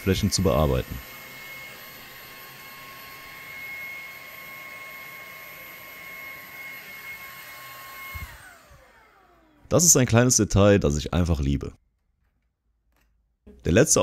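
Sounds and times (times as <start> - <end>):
vacuum motor spinning down: 0.0 - 10.0
handheld vacuum running: 0.0 - 10.4.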